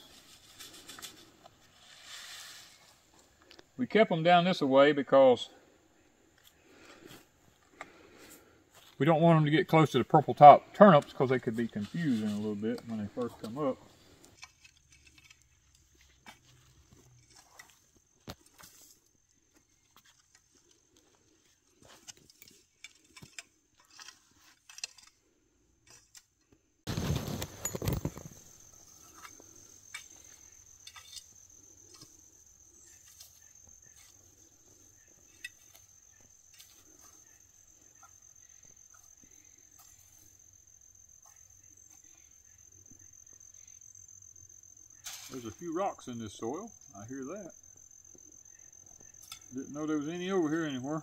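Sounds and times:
rake scraping sandy soil: 0.0 - 3.3, 11.0 - 19.1, 21.7 - 25.0, 26.9 - 40.5, 45.0 - 45.8
high insect trill: 0.0 - 20.9, 26.9 - 51.0
rocks clicking against rake tines: 14.2 - 16.2, 21.9 - 25.2, 25.8 - 32.2.

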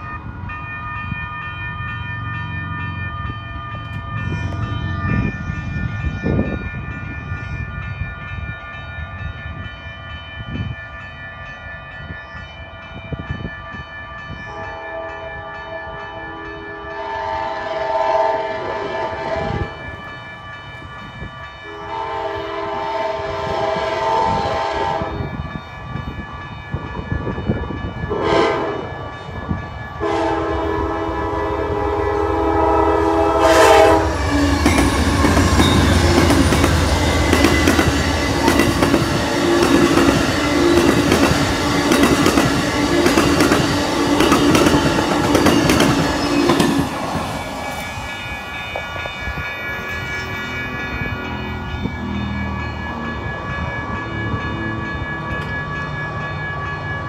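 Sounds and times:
electronic crossing bell ringing: 0.0 - 57.0
train horn blasts: 14.5 - 19.9, 21.6 - 25.4, 28.1 - 29.0, 30.0 - 41.0.

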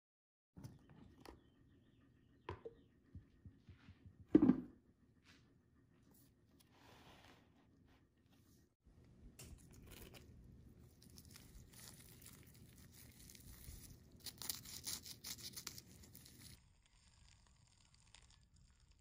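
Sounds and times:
crunchy roll crackling: 9.4 - 19.0.

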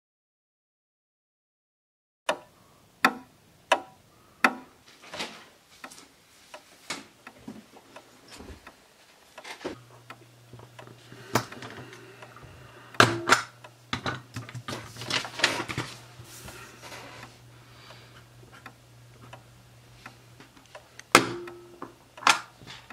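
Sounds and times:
low steady hum: 5.6 - 22.9
paper rustling: 14.6 - 17.3.

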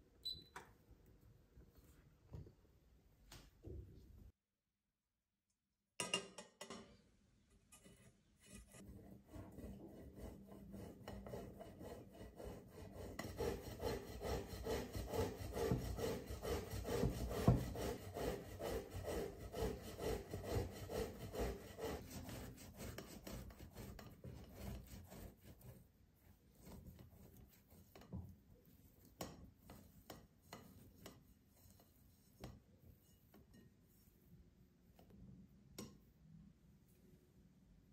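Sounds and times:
potato rasping on hand grater: 8.4 - 25.9.

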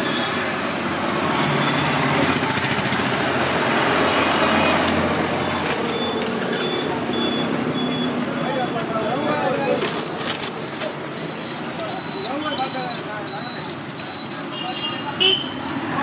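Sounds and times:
street traffic: 0.0 - 16.0
vehicle engine: 0.0 - 16.0
faint high beep: 5.4 - 8.2.

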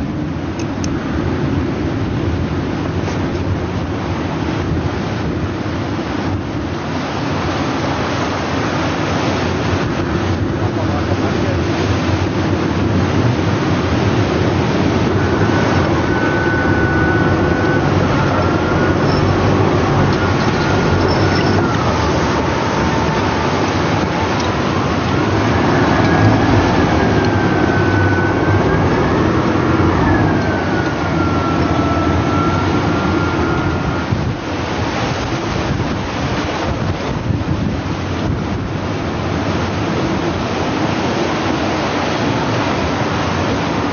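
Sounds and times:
winch motor whining: 14.3 - 34.4.

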